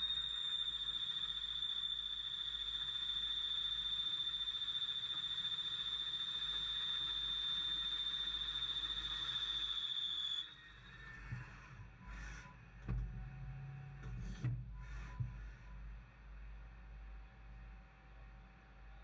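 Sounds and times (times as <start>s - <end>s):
lathe cutting whine: 0.0s - 10.7s.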